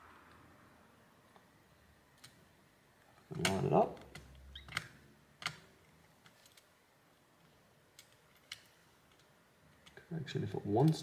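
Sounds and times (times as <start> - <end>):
faint clicks of small parts and tool: 2.1 - 6.8, 7.4 - 10.1.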